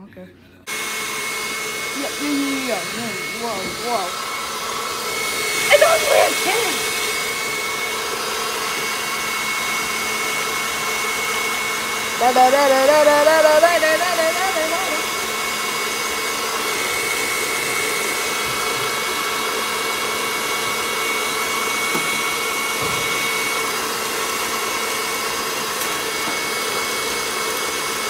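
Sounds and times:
stand mixer motor whine: 0.7s - 28.0s.

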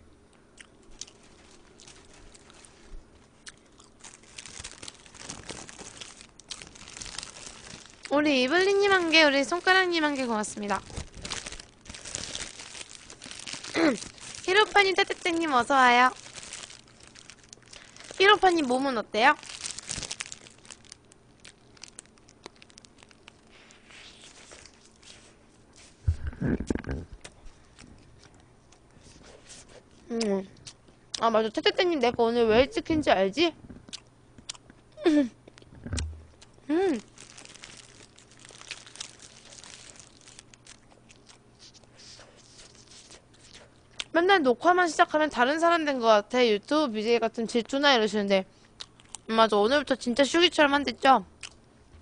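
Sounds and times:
paper wrapper rustling and crinkling: 1.0s - 3.1s, 4.0s - 26.0s, 36.9s - 40.8s
chewing mouth sounds: 33.8s - 34.8s.

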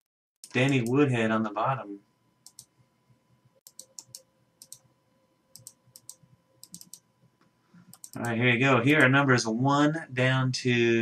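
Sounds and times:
computer mouse and keys clicking: 0.4s - 1.0s, 2.4s - 2.7s, 3.6s - 4.9s, 5.5s - 9.2s.

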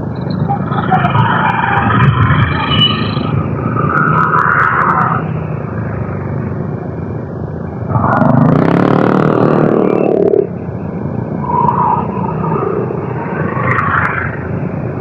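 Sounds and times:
motorcycle running on road: 0.0s - 11.4s
engine revving: 7.9s - 10.5s.

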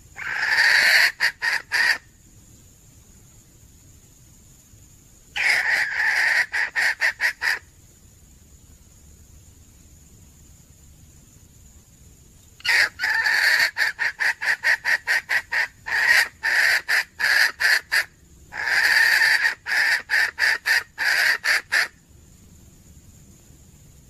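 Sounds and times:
hen cackling and clucking: 0.2s - 2.1s, 5.3s - 7.7s, 12.6s - 22.0s.

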